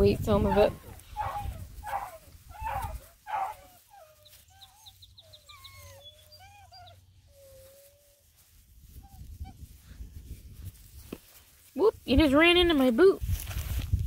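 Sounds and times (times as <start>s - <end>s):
scuffling: 0.0s - 14.0s
puppies whining: 0.3s - 8.4s.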